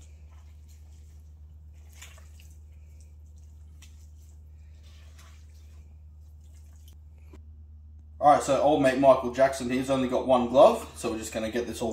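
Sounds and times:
wet meat squelching and tearing: 0.0 - 7.1
steady low hum: 0.0 - 11.9.

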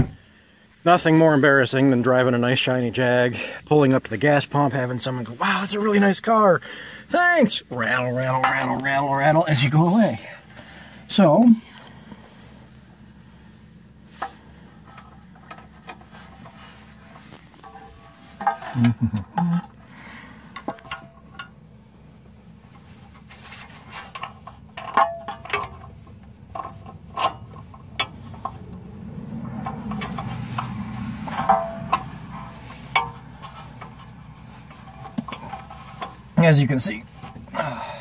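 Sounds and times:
metal tapping: 20.5 - 21.6, 24.0 - 36.3.

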